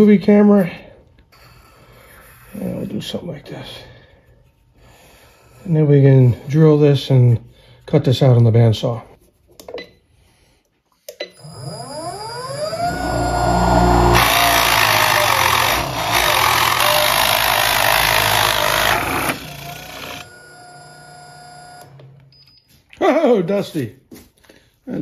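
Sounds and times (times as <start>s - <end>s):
drill press motor whine: 11.3s - 22.2s
drill bit boring through wood: 11.4s - 21.9s.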